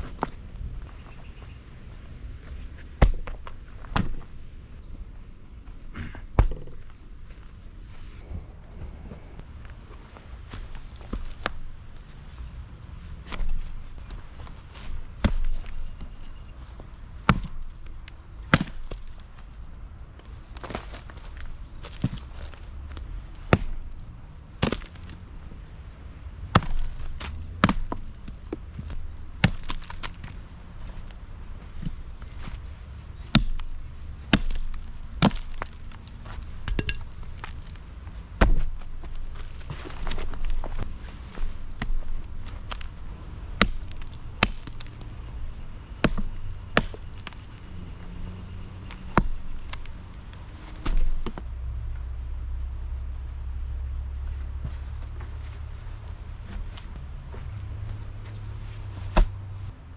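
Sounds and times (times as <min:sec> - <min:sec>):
bird chirping: 0:00.9 - 0:01.7, 0:03.7 - 0:07.4, 0:08.1 - 0:09.4, 0:15.6 - 0:17.1, 0:21.3 - 0:24.0, 0:25.8 - 0:27.4, 0:32.0 - 0:33.3, 0:54.7 - 0:55.9
axe chopping log: 0:03.0 - 0:04.2, 0:17.2 - 0:19.2, 0:24.6 - 0:25.2, 0:26.5 - 0:30.3, 0:33.3 - 0:37.8, 0:38.4 - 0:40.6, 0:43.6 - 0:45.0, 0:46.0 - 0:47.6, 0:48.8 - 0:50.0, 0:50.7 - 0:51.4.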